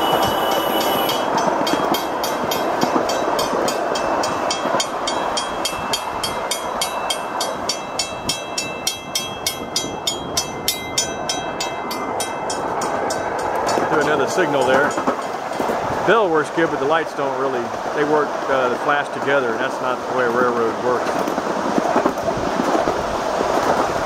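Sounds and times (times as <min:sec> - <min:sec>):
crossing signal bell ringing: 0:00.0 - 0:15.8
train wheels rumbling on rail: 0:00.0 - 0:24.0.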